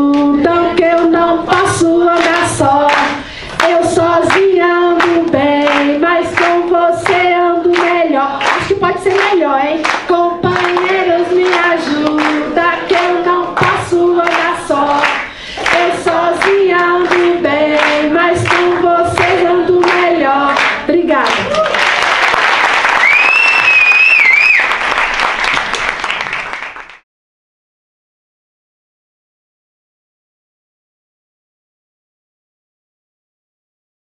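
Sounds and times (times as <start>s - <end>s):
women singing together: 0.0s - 21.5s
hands clapping: 0.9s - 27.0s.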